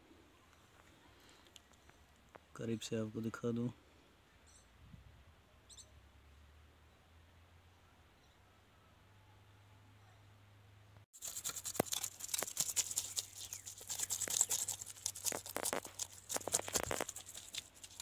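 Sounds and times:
knife scraping fish scales: 11.2s - 18.0s.

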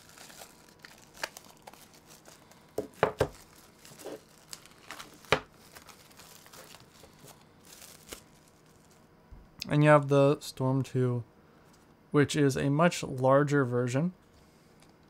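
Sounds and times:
plastic wrapping crinkling and tearing: 0.0s - 9.1s.

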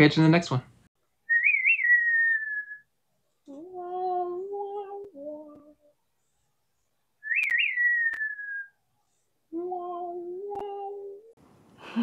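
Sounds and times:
whistled note: 1.3s - 2.9s
high voice humming notes: 3.5s - 5.9s, 9.5s - 11.3s.

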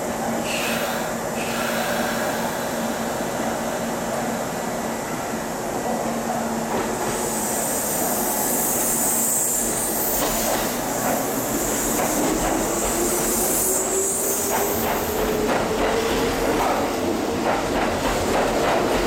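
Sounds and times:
high hiss: 7.1s - 15.3s.

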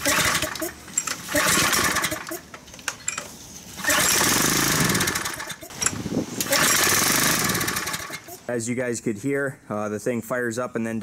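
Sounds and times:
pull-starting engine: 0.0s - 2.5s, 3.8s - 8.4s.

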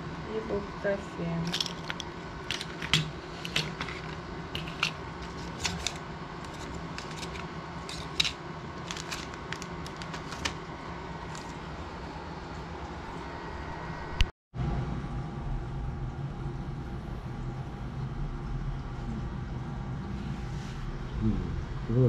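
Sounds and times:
faint steady hum: 0.0s - 22.0s
blister packs clicking and crinkling: 1.5s - 10.6s, 11.2s - 11.6s.

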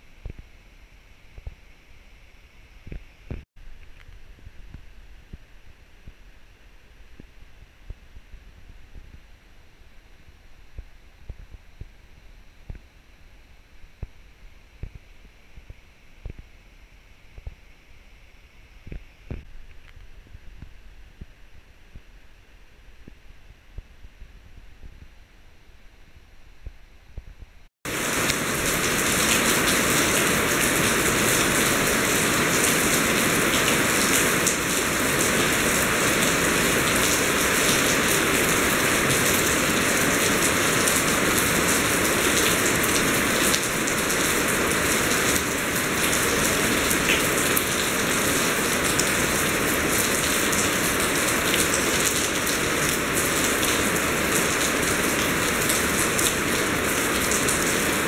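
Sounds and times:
heavy rain falling: 27.9s - 58.0s.

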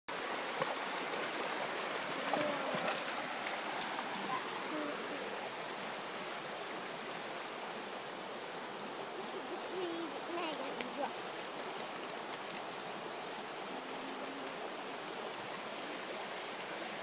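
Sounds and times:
stream water rushing: 0.1s - 17.0s
splashes and stone knocks: 0.4s - 4.6s.

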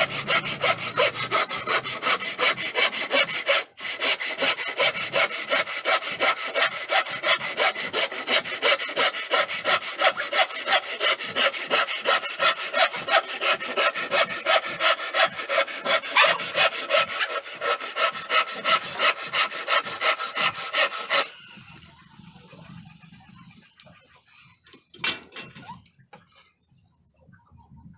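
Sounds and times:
handsaw cutting wood: 0.0s - 21.4s.

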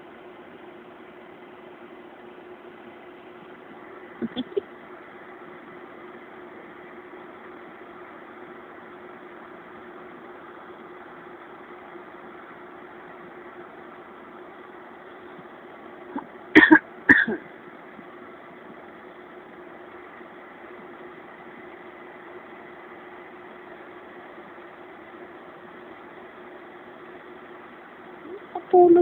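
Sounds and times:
steady low hum: 0.0s - 29.0s
loud coughs: 16.6s - 17.4s.

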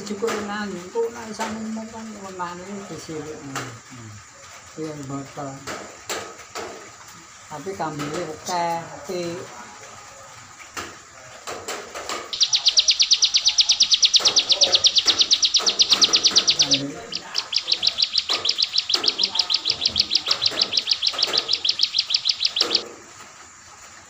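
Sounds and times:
songbird rapid high trills: 12.2s - 22.9s.

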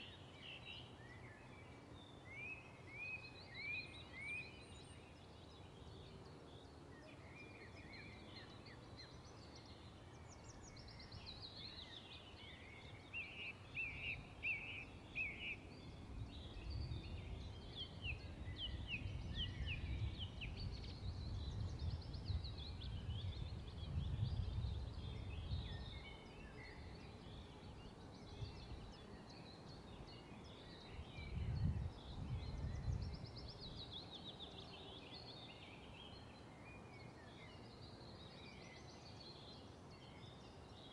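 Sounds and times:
songbirds chirping and trilling: 0.0s - 40.9s.

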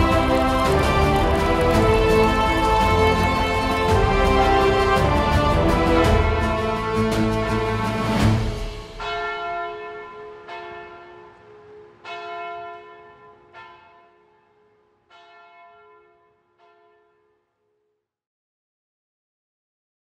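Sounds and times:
church bell tolling: 9.0s - 17.2s.

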